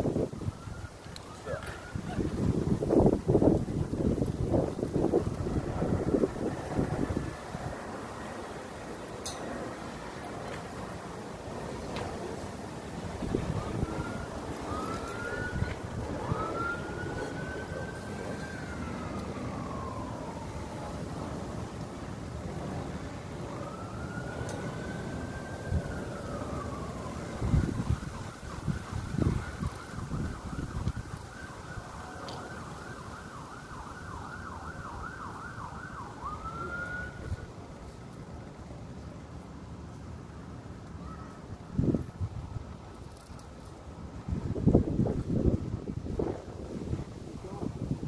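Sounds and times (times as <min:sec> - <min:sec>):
siren wailing: 0:00.0 - 0:37.7.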